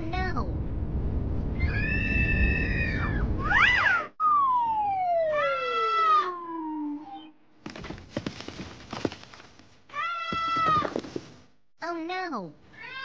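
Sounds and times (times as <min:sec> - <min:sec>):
falling whistle-like glide: 0:01.5 - 0:07.4.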